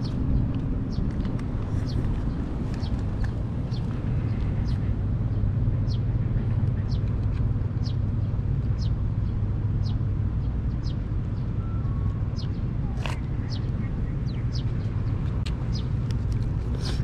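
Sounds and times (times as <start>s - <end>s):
low mechanical hum: 0.0s - 17.0s
bird chirping: 10.7s - 15.9s.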